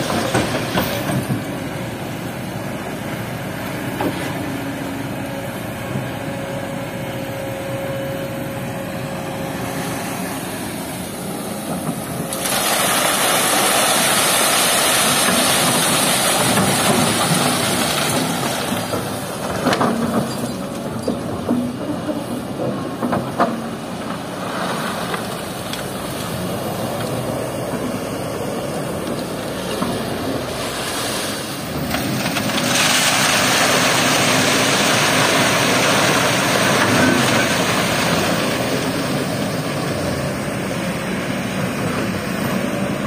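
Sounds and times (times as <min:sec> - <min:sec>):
excavator diesel engine running: 0:00.0 - 0:43.0
rush of water and gravel: 0:09.7 - 0:43.0.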